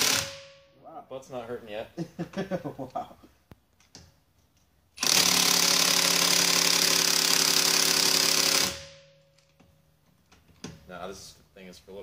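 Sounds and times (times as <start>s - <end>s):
impact wrench hammering: 0.0s - 0.8s, 5.0s - 9.7s.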